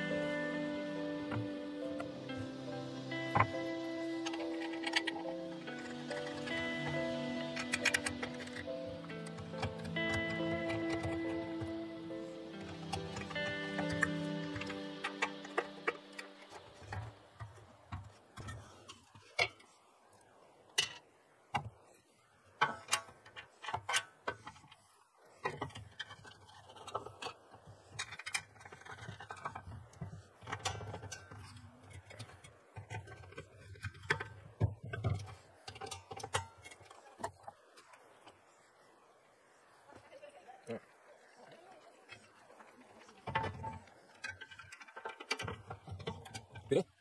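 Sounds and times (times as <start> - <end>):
metal grill parts clattering: 4.2 - 11.4.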